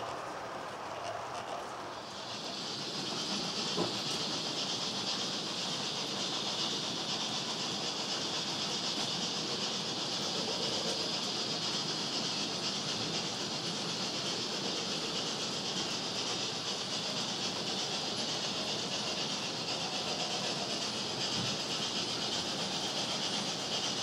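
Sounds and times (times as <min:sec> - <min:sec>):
model train whirring: 0:00.0 - 0:24.0.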